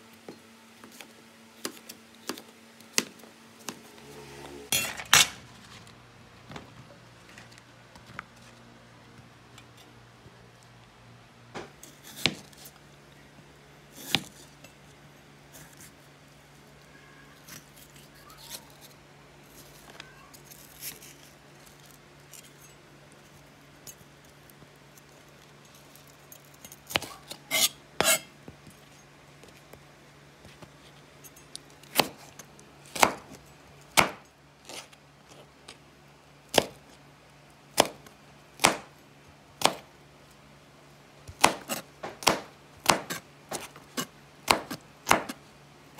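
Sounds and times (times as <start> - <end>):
knife chopping on cutting board: 11.6 - 12.6, 33.0 - 33.4, 34.0 - 34.2, 39.6 - 39.8, 41.3 - 45.4.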